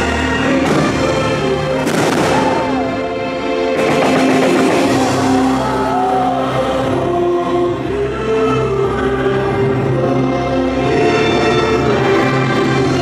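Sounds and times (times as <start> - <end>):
show music: 0.0 - 13.0
fireworks bursting: 0.6 - 2.8.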